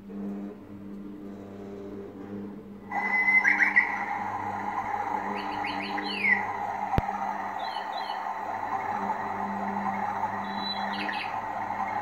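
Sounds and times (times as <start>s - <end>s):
click: 0.3s - 1.1s
birds chirping: 2.9s - 12.0s.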